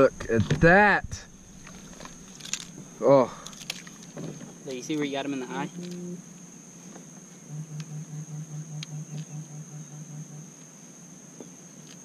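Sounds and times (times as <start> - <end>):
high-pitched insect buzz: 4.7 - 12.0
pulsing low hum: 7.4 - 10.6.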